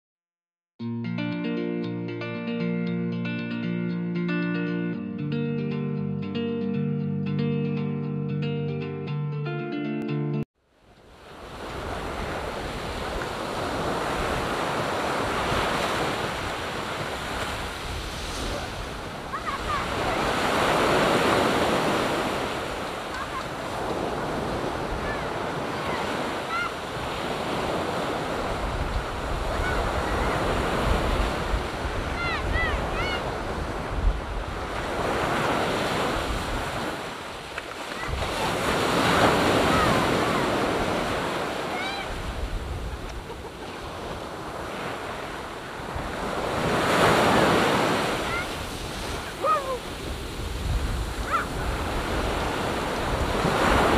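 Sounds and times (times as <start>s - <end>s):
ocean surf on sandy beach: 10.7s - 53.9s
wind buffeting microphone: 11.6s - 35.3s, 42.1s - 44.5s, 48.6s - 53.9s
wind rumbling on microphone: 27.0s - 35.0s, 42.1s - 44.4s, 48.7s - 53.9s.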